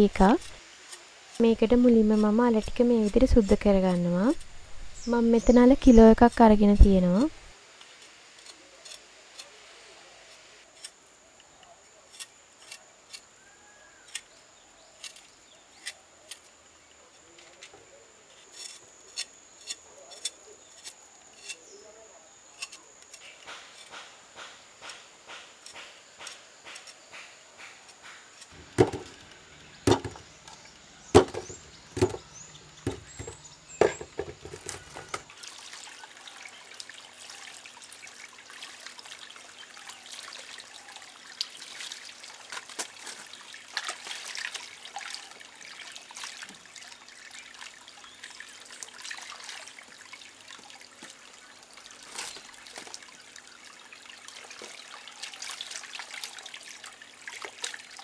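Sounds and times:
water splashing and dripping: 23.4s - 58.0s
sharp knocks: 23.5s - 30.3s, 31.1s - 35.2s.

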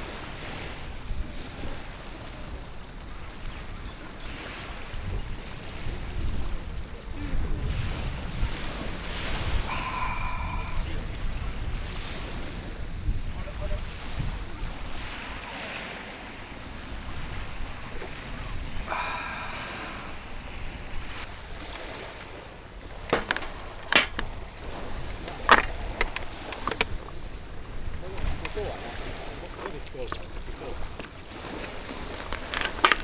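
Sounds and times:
waves: 0.0s - 33.0s
wind rumble on microphone: 0.0s - 33.0s
sharp knocks: 23.1s - 24.2s.

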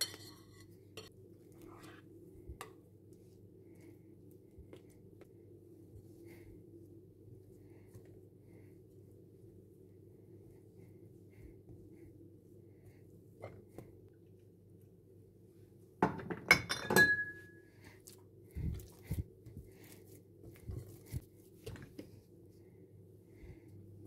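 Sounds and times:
glass bowl clinking: 16.3s - 17.6s.

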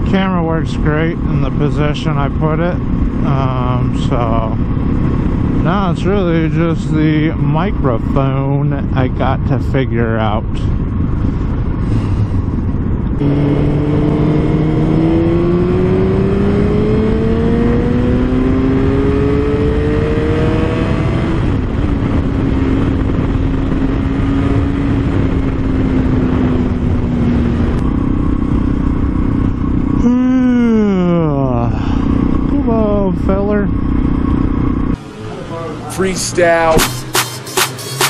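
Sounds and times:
motorcycle engine accelerating: 0.0s - 9.7s, 10.5s - 38.0s
wind rush: 0.8s - 30.0s.

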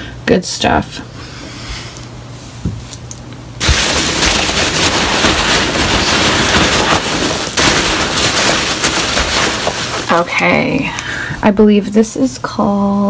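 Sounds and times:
packing peanuts crackling rustle: 3.6s - 10.6s.

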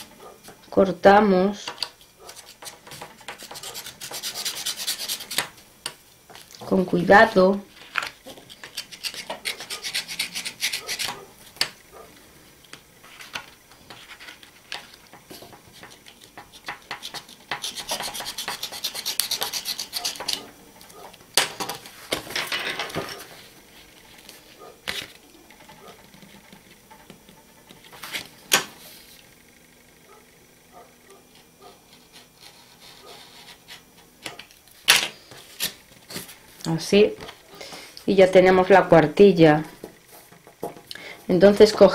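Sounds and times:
knife cutting through cardstock: 2.3s - 5.4s, 8.3s - 11.2s, 15.8s - 20.5s.

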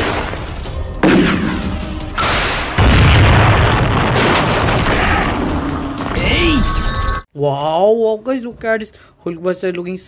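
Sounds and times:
loud boom with deep rumble: 2.2s - 5.4s.

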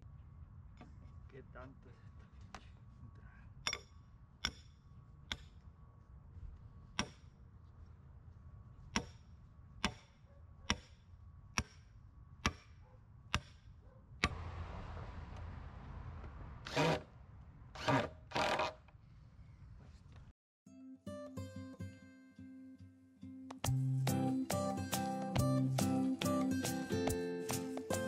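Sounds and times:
sledgehammer striking steel stake: 3.6s - 5.7s, 7.0s - 7.4s, 8.9s - 14.4s
steady rushing noise: 14.2s - 17.8s.

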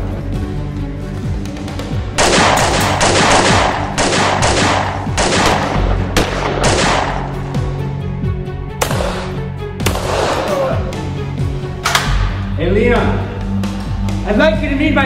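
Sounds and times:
handgun shots: 2.2s - 7.3s.

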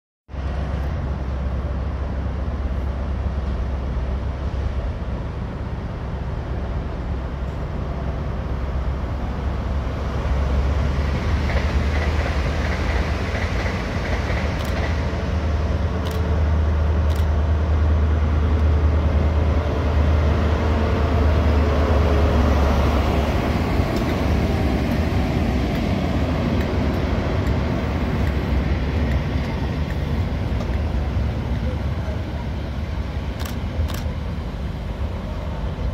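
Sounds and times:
diesel locomotive engine drone: 0.3s - 35.9s
sharp clicks: 12.0s - 15.0s.

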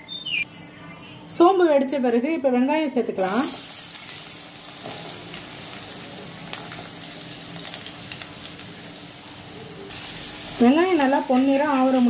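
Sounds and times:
onions sizzling in hot oil: 3.2s - 12.0s.

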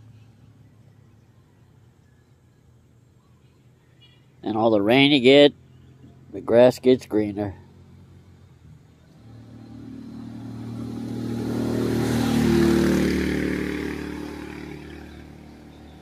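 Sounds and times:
vehicle engine passing by: 5.2s - 16.0s.

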